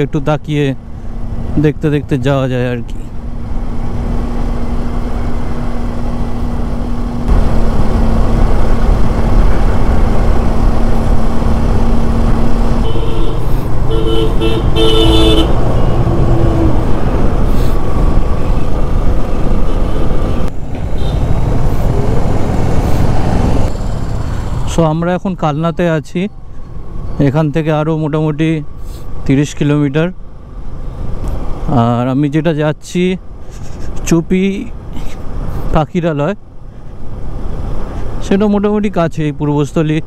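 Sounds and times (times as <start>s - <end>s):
motorcycle wind and road noise: 0.0s - 27.8s, 36.4s - 40.0s
vehicle horn tooting: 12.8s - 16.6s.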